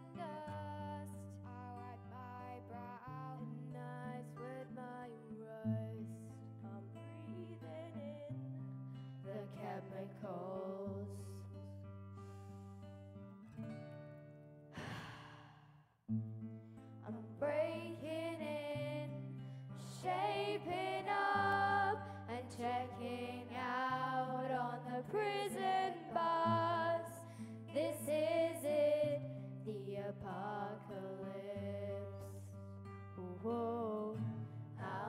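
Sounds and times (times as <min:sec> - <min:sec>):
acoustic guitar: 0:00.0 - 0:35.0
person singing: 0:20.0 - 0:27.2.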